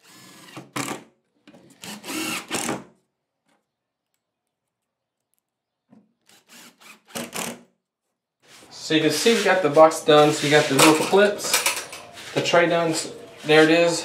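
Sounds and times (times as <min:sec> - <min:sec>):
impact driver driving screw into wood: 0:00.0 - 0:02.9, 0:06.3 - 0:07.7.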